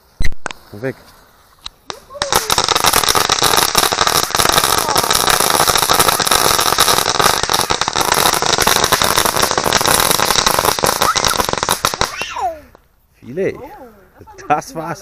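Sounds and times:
firecrackers banging: 1.8s - 12.4s.

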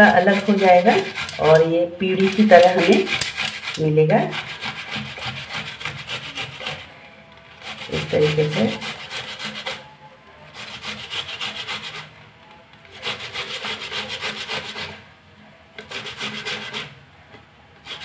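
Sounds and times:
tomato rasping on grater: 0.0s - 6.9s, 7.6s - 9.9s, 10.5s - 12.1s, 12.9s - 15.0s, 15.8s - 16.9s.

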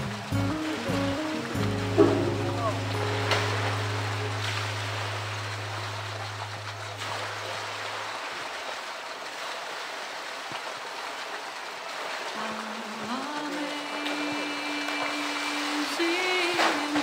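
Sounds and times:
low steady hum: 0.0s - 8.7s
water splashing and sloshing: 0.0s - 17.0s.

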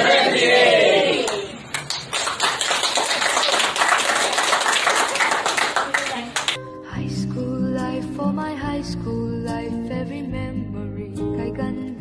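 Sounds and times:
group applauding: 1.0s - 6.6s.

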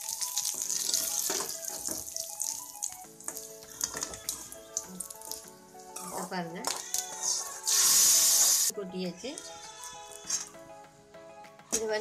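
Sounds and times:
leaves and chillies sizzling in oil: 0.0s - 2.7s, 7.1s - 8.7s
background music: 0.0s - 12.0s.

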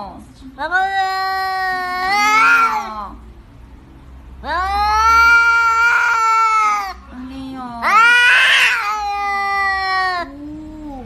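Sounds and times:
cat yowling: 0.8s - 3.2s, 4.4s - 7.0s, 7.8s - 11.0s.

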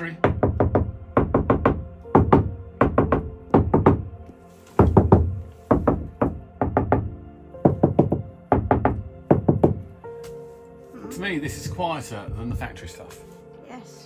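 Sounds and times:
knuckles knocking on steel panels: 0.2s - 4.1s, 4.8s - 9.9s.

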